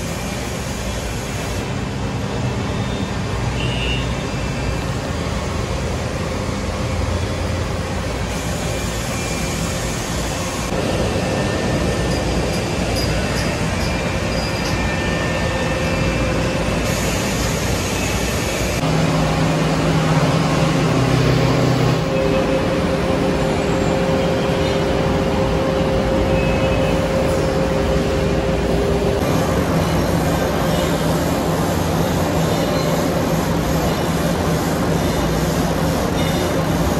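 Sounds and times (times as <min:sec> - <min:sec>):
factory machinery humming: 0:00.0 - 0:36.9.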